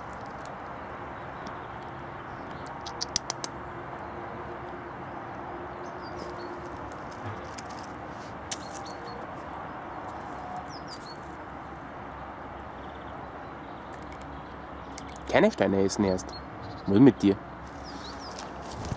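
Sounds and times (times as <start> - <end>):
hen foraging on gravel: 0.0 - 2.7, 6.0 - 11.8, 12.8 - 15.3, 17.6 - 18.9
sharp clicks: 2.5 - 3.6.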